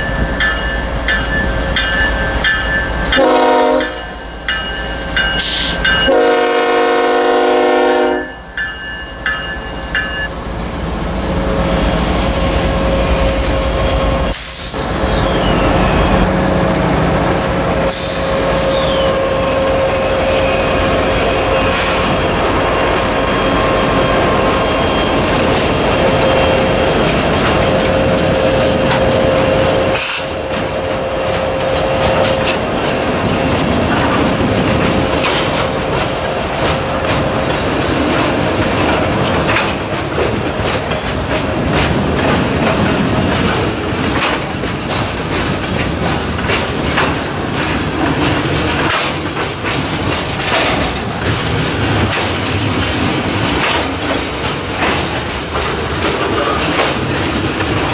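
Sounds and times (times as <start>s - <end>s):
freight train passing: 0.0s - 57.9s
wheels clicking over rail joints: 21.0s - 57.9s.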